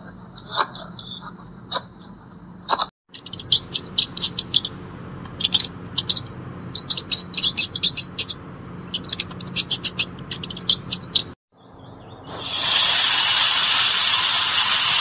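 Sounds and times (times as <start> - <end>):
mice squeaking: 2.7 - 12.6.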